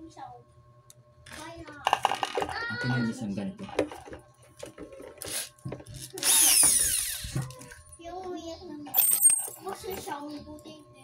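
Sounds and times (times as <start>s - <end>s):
electric drill whine: 5.1s - 7.6s.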